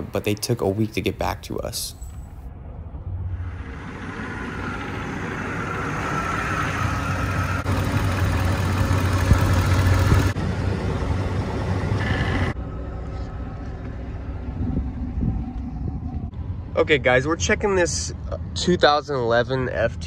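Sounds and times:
car engine idling: 0:02.1 - 0:17.5.

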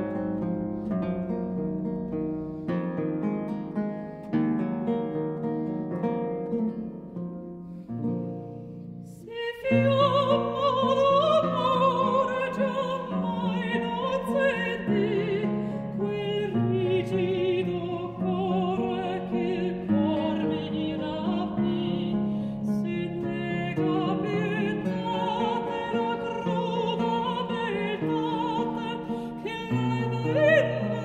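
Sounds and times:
woman singing with vibrato: 0:09.0 - 0:31.0.

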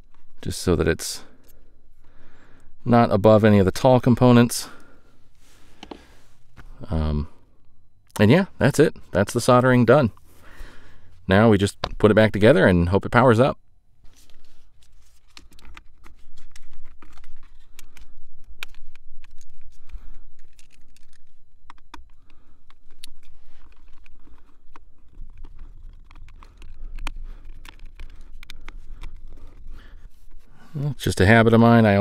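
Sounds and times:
small clicks taps and scrapes: 0:14.2 - 0:30.5.

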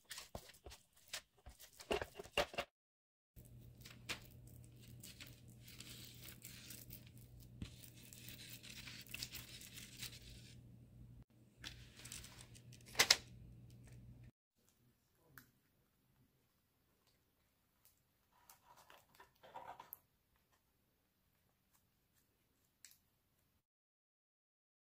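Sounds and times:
paper rustling: 0:00.0 - 0:02.7, 0:03.4 - 0:10.6, 0:11.6 - 0:13.3.

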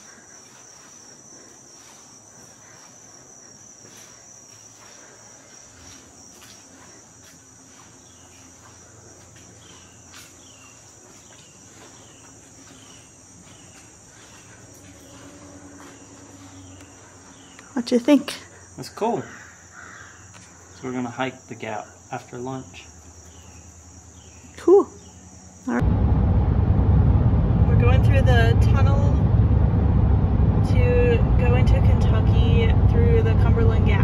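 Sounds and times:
insects trilling: 0:00.0 - 0:25.8.

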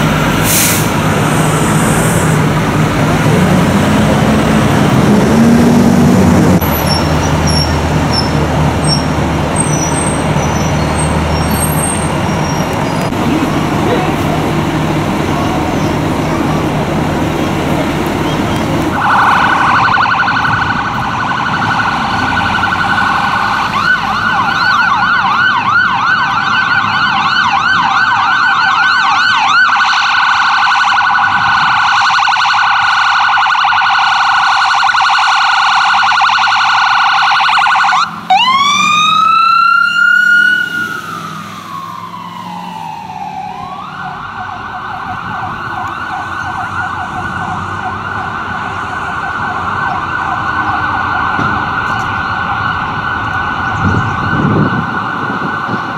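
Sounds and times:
siren long wail: 0:13.4 - 0:55.9
ambulance siren yelp: 0:18.1 - 0:55.9
slower sweeping siren: 0:18.8 - 0:55.9.

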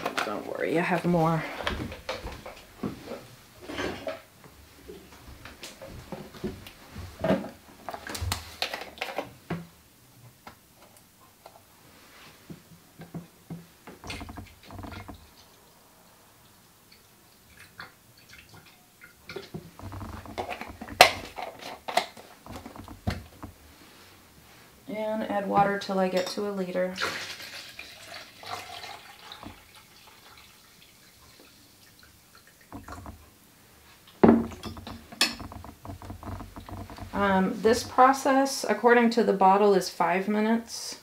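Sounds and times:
plastic bottles clicking and knocking: 0:07.2 - 0:09.7, 0:19.3 - 0:23.6, 0:32.7 - 0:33.2, 0:34.2 - 0:38.0.

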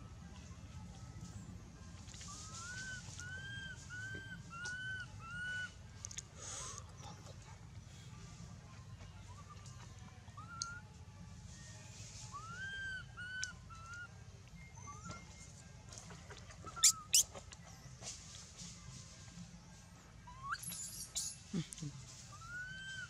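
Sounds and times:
thin animal calls: 0:02.0 - 0:07.4, 0:12.3 - 0:15.3, 0:16.1 - 0:17.6, 0:20.3 - 0:21.5, 0:22.3 - 0:23.0.

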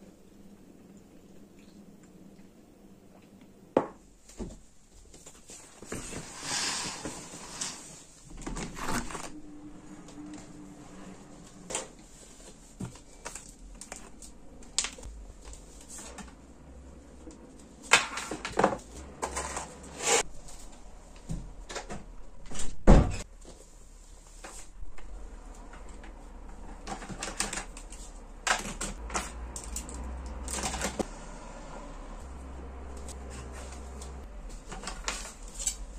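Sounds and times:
curtain rustling: 0:05.3 - 0:12.8.

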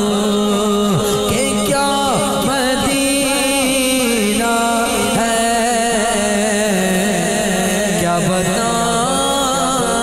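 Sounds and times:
man singing into a microphone: 0:00.0 - 0:10.0.

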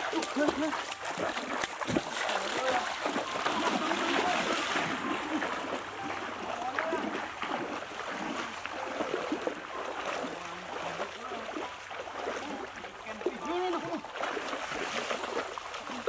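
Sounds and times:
people wading through water: 0:00.0 - 0:16.0.

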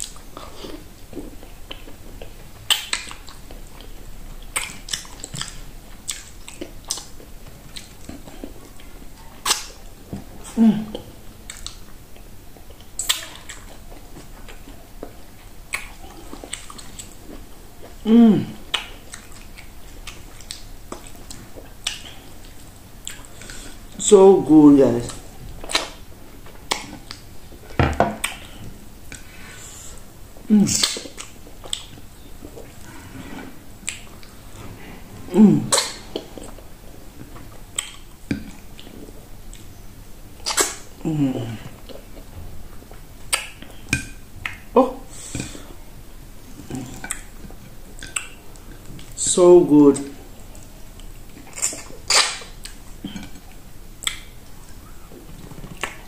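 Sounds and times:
sharp lip smacks: 0:09.4 - 0:09.8, 0:13.0 - 0:13.6, 0:30.7 - 0:31.9, 0:40.4 - 0:40.9, 0:51.5 - 0:52.8
lips smacking and sucking: 0:30.7 - 0:39.7, 0:40.4 - 0:42.3, 0:51.3 - 0:54.4
wet lip smacks: 0:40.4 - 0:40.9, 0:54.0 - 0:54.3.

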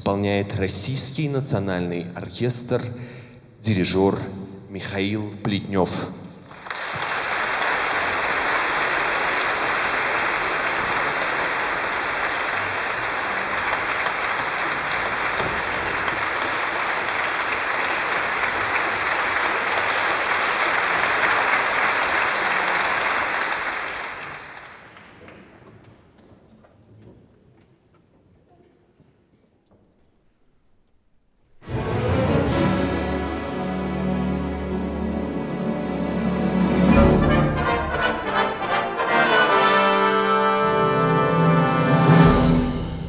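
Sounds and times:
audience applauding: 0:06.5 - 0:25.7.

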